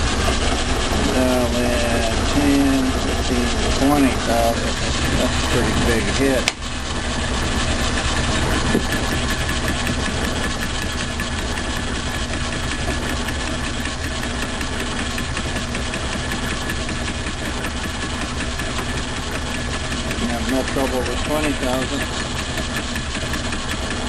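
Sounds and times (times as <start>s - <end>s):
lathe machine drone: 0.0s - 24.0s
fast even ticking: 7.6s - 24.0s.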